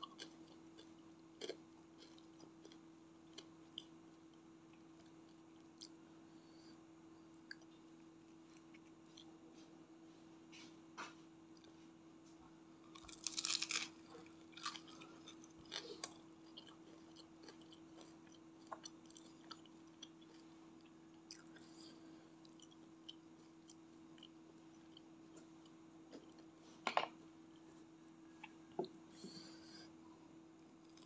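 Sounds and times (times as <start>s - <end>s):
soft chewing clicks: 0.0s - 6.0s, 7.3s - 9.7s, 12.9s - 26.6s
faint steady hum: 0.0s - 31.0s
crunching bites of fried snacks: 12.9s - 20.4s.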